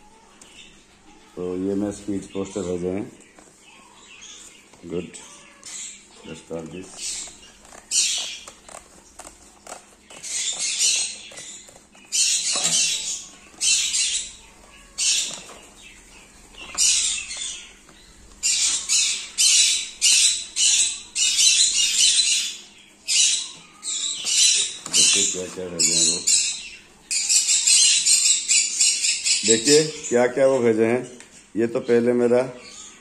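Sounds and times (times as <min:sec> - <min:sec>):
parrots squawking: 0:00.0 - 0:31.2
paper rustling: 0:06.5 - 0:19.3.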